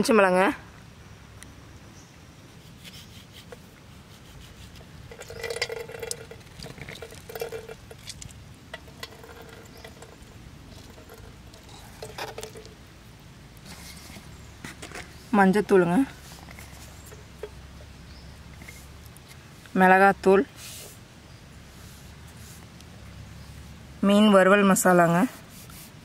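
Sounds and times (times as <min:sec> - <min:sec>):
knife cutting lemon: 0:02.7 - 0:04.9
juice pattering into metal pan: 0:04.7 - 0:12.9.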